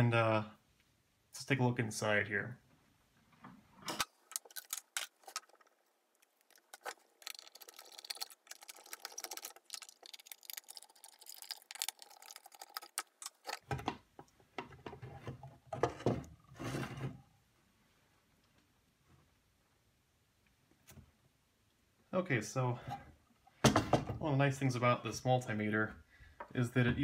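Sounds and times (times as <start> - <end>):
small clicks and scraping: 3.4 - 17.1.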